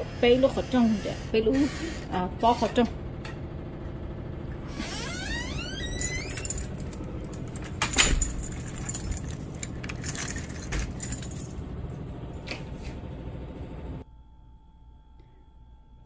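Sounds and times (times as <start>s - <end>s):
keys jangling: 5.9s - 12.7s.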